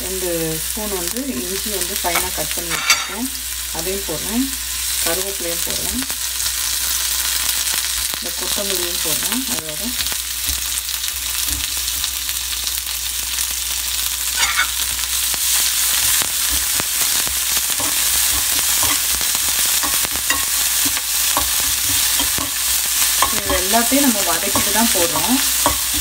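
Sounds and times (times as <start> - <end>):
mustard seeds sizzling in oil: 0.0 - 26.0
steel spoon scraping a pan: 1.4 - 3.3, 14.3 - 14.9, 17.6 - 26.0.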